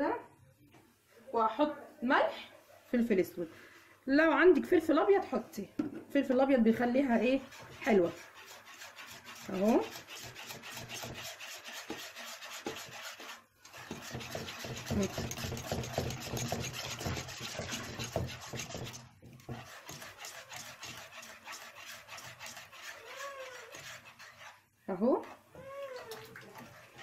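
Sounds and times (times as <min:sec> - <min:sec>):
utensil scraping metal pot: 0:06.8 - 0:27.0.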